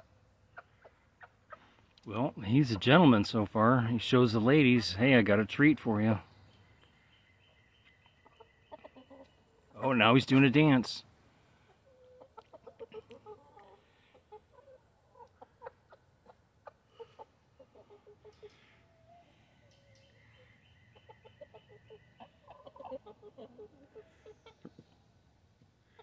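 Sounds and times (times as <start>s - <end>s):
chickens clucking softly: 0.0s - 11.0s, 11.6s - 26.0s.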